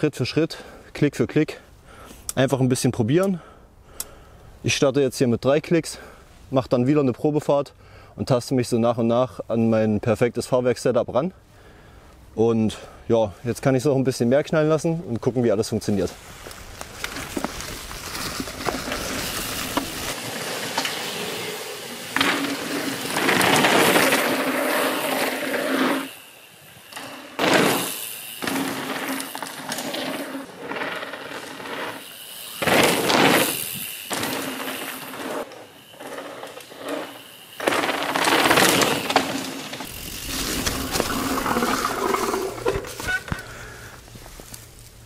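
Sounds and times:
bike tyres crunching through leaves: 16.0 - 45.0.

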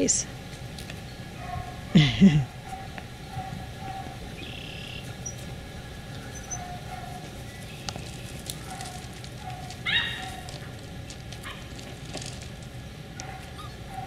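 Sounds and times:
low background noise: 0.0 - 14.0
puppy yelping: 1.4 - 5.4, 6.2 - 7.6, 8.6 - 10.7, 13.2 - 14.0.

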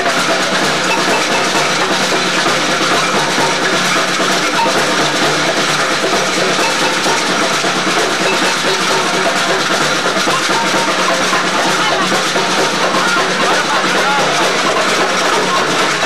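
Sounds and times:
crowd voices: 0.0 - 16.0
samba percussion band playing: 0.0 - 16.0.

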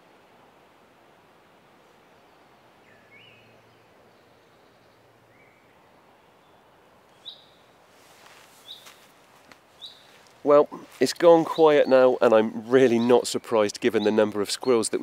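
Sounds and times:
birds whistling and chirping: 2.8 - 3.8, 7.1 - 7.6, 11.1 - 15.0
soft rustle: 7.0 - 11.6.

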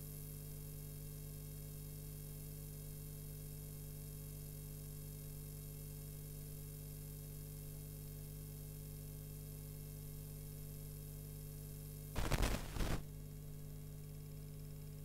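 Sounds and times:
electrical hum with faint hiss: 9.4 - 15.0
loud crackling burst: 12.2 - 13.1.

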